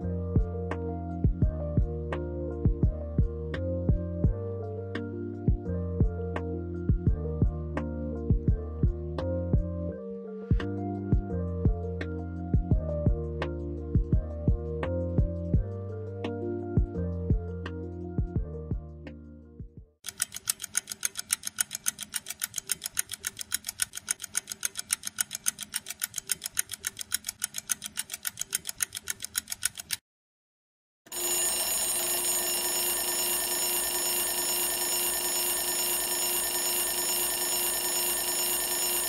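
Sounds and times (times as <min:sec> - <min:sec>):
fast ringing alarm pulses: 0:31.1 - 0:39.0
steady alarm tone: 0:31.1 - 0:39.0.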